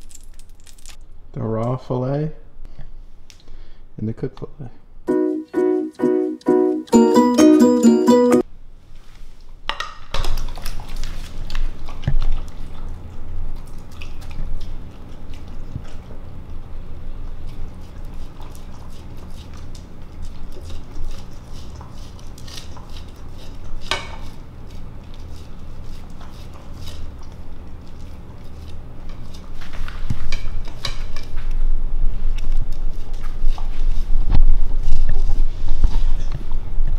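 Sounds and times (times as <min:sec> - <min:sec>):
dog chewing and licking: 0:10.3 - 0:30.8.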